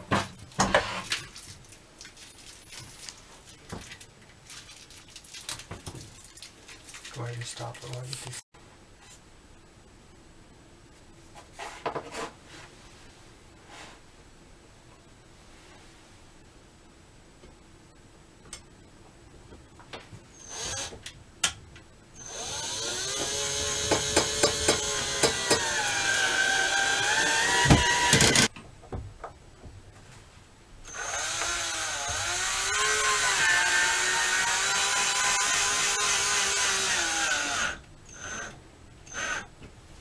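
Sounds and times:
cordless drill driving screws: 20.4s - 21.0s, 22.2s - 28.5s, 30.9s - 39.5s.

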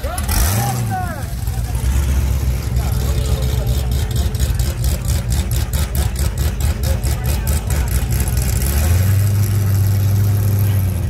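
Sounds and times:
drag car engine idling: 0.0s - 11.0s.

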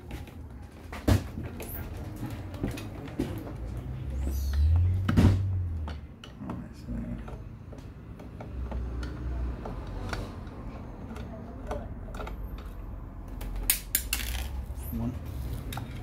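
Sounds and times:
screwdriver clicking and scraping: 8.1s - 14.6s.

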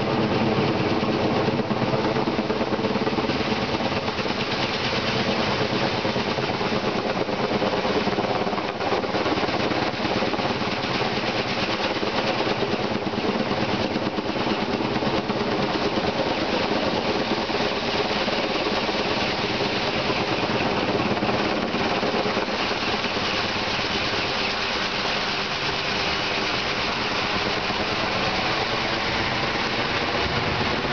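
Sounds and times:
helicopter rotor chop: 0.0s - 30.9s
turbine engine whine: 0.0s - 30.9s.

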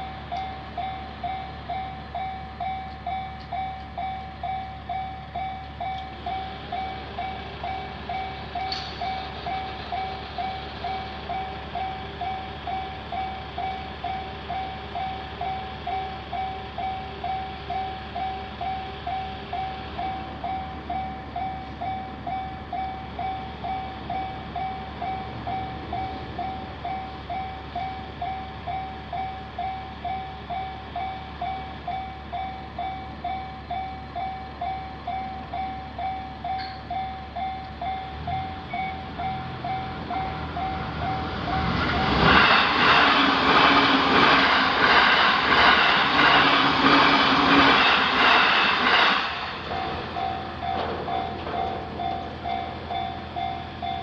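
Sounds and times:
electric train passing: 0.0s - 54.0s
level crossing bell ringing: 25.6s - 41.8s, 49.6s - 54.0s.

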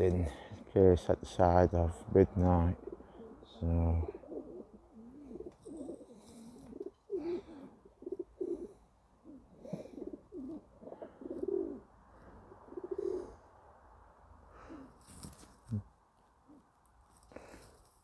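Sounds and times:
pigeons cooing: 2.7s - 13.4s, 14.6s - 15.3s.

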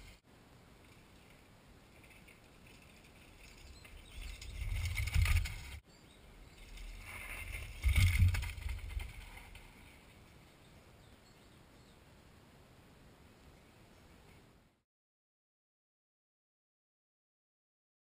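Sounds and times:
mountain bike on dirt trail: 0.0s - 10.5s.

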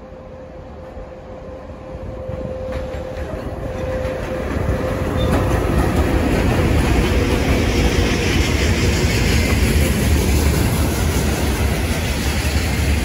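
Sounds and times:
train rumble: 0.0s - 13.0s.

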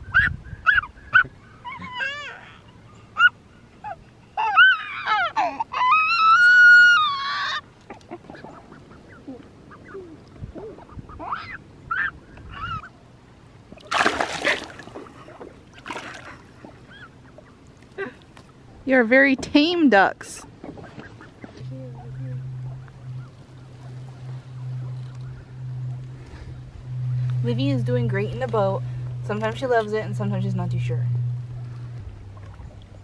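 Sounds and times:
water splash: 13.8s - 16.7s
ducks calling: 14.0s - 17.8s, 20.6s - 33.0s.

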